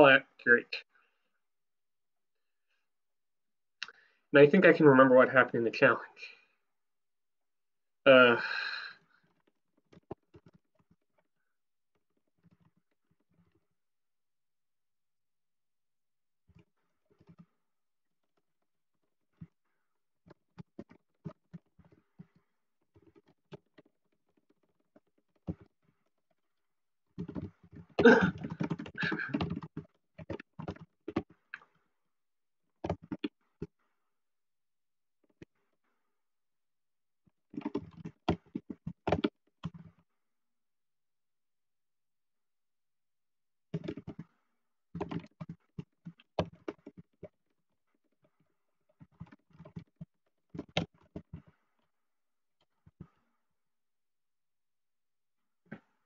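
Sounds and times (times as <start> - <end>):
keyboard typing: 27.2 - 31.3.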